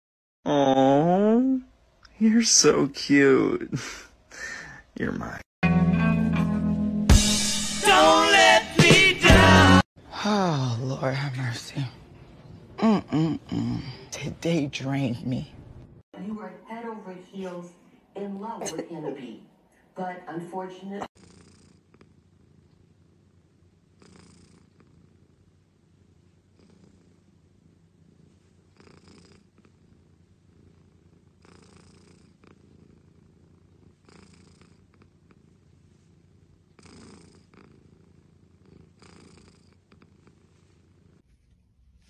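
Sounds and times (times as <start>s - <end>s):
cat purring: 21.1s - 41.7s.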